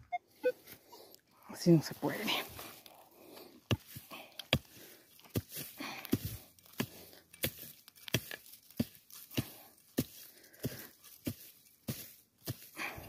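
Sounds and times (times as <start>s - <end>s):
earth scraping: 0.4s - 13.0s
digging tool striking ground: 3.5s - 13.0s.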